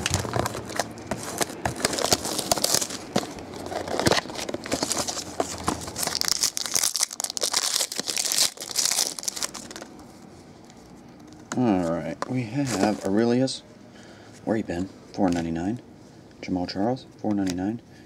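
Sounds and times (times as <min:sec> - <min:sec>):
foil wrapper crinkling and tearing: 0:00.0 - 0:09.9.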